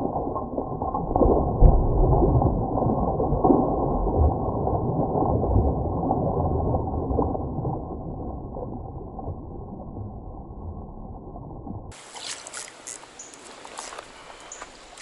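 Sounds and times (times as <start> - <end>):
muffled underwater stream gurgling: 0.0 - 15.0.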